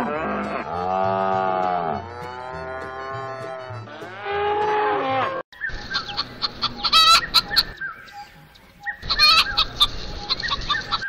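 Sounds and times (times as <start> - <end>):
calf mooing: 0.0 - 5.4
chickens clucking: 5.6 - 11.0
chicken squawk: 5.7 - 7.8, 9.0 - 11.0.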